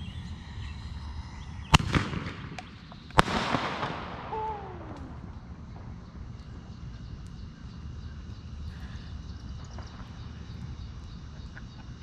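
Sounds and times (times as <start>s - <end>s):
crackling hiss: 0.0s - 12.0s
firework bangs: 1.7s - 6.2s.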